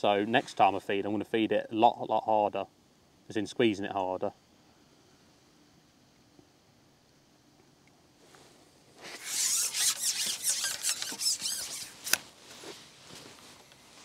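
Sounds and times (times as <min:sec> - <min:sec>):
fishing pole sections sliding: 0:09.0 - 0:13.8.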